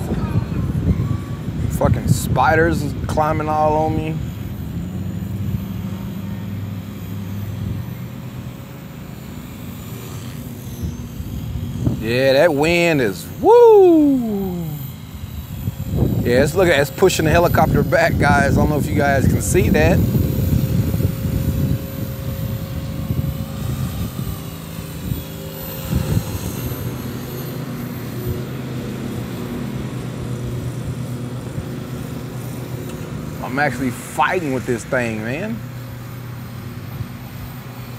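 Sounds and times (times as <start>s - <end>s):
wind on microphone: 0.0s - 6.2s, 9.8s - 35.5s, 36.6s - 37.9s
rc helicopter rotor hum: 0.0s - 37.9s.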